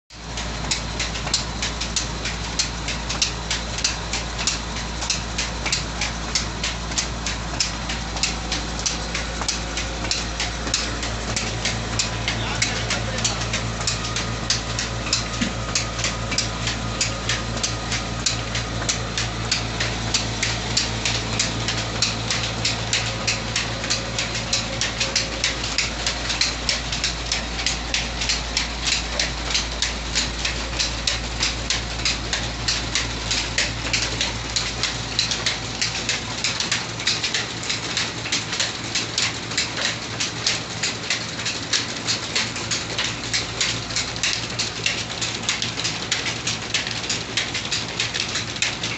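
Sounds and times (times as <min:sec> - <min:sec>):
fast even ticking: 0:00.3 - 0:38.5.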